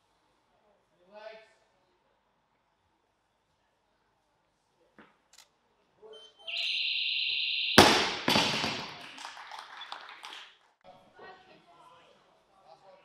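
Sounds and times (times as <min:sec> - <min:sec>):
electronic buzzer tone: 0:06.5 - 0:08.0.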